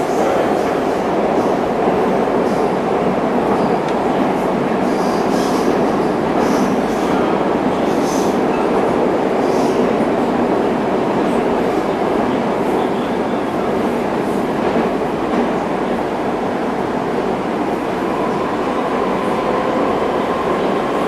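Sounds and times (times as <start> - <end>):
metro train rumbling in tunnel: 0.0 - 21.0.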